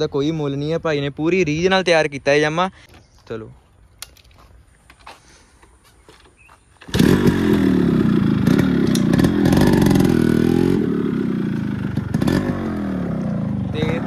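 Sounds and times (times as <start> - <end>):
two-stroke engine revving: 6.8 - 14.0.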